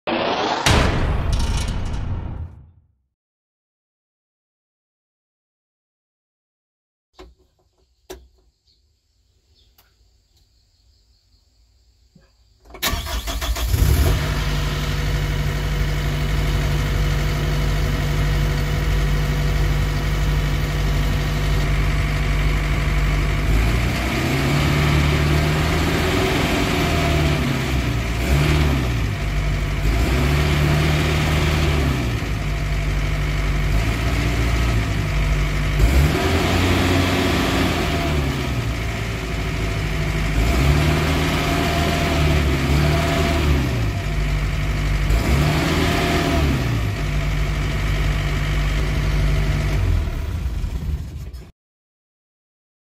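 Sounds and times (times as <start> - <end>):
diesel engine running: 12.8 - 51.4.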